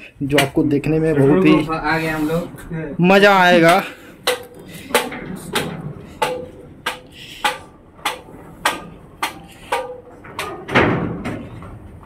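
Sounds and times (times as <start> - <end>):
footsteps on metal stairs: 3.6 - 12.0.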